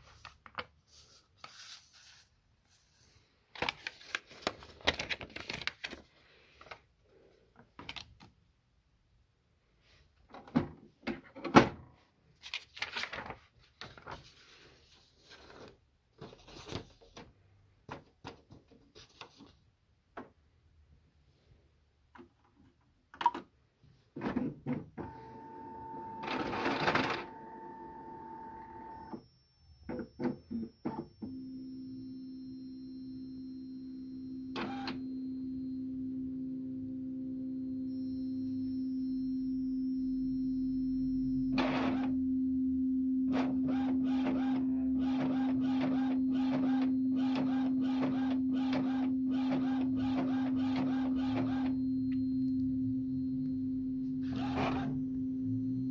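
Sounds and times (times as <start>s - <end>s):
printer mechanism whirring and clacking: 25.0s - 29.1s, 43.3s - 51.7s, 54.3s - 55.0s
printer motor hum: 25.0s - 29.1s, 43.3s - 51.7s.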